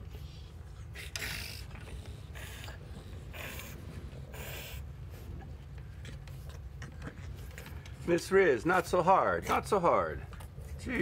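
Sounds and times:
dogs huffing while play-wrestling: 0:00.0 - 0:08.0.

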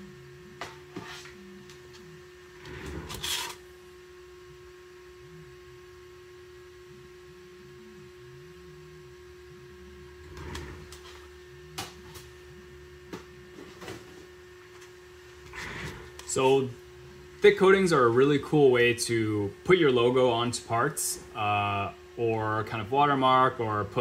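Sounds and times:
steady hum: 0:00.0 - 0:24.0
plates rustling scrape: 0:02.6 - 0:03.6.

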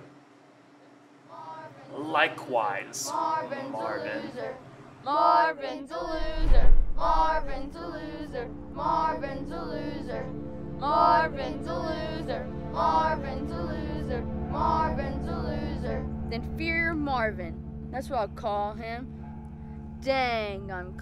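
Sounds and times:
music with singing voices: 0:01.3 - 0:17.4
low drone: 0:06.0 - 0:21.0
loud low boom: 0:06.1 - 0:07.8.

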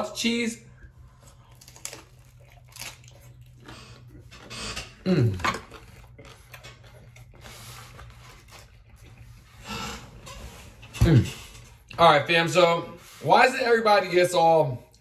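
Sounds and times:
crunching and wet chewing: 0:00.7 - 0:10.4.

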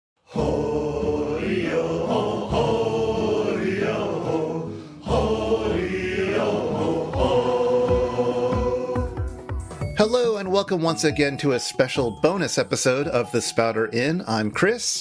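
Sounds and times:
chant-like sung tones: 0:00.2 - 0:09.3.

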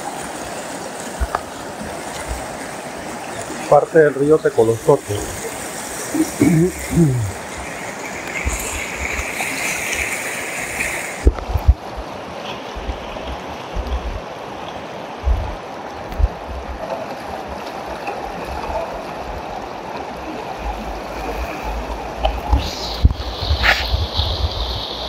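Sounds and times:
river rushing over rapids: 0:00.0 - 0:25.0
bright water hiss: 0:03.3 - 0:11.3, 0:22.3 - 0:25.0.

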